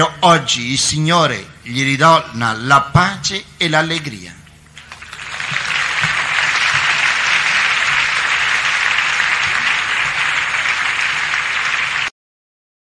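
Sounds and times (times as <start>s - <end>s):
congregation applauding: 4.8s - 12.1s.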